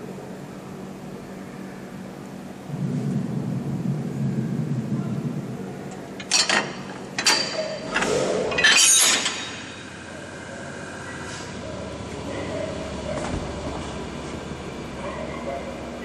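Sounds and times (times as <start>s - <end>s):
low rumble: 2.5s - 6.2s
steel coupler clanking rattle: 5.9s - 9.8s.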